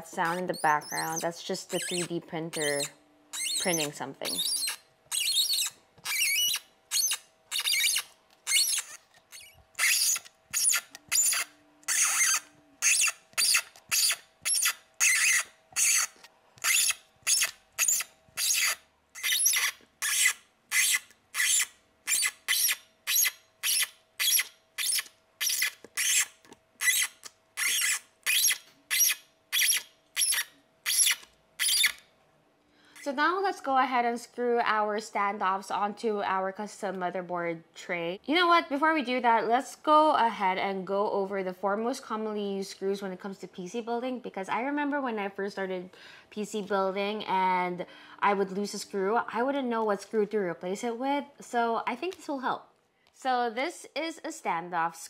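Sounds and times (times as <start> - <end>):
tap cutting threads squeaking: 0.0 - 32.0
faint machine hum: 0.0 - 55.0.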